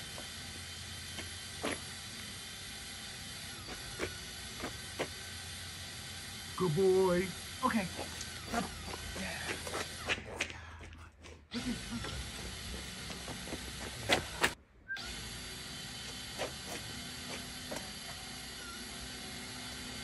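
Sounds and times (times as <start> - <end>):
footsteps on asphalt: 1.0 - 2.1, 3.7 - 5.2, 7.9 - 14.6, 16.0 - 18.3
dog paws clicking on asphalt: 8.0 - 11.4, 12.0 - 14.6.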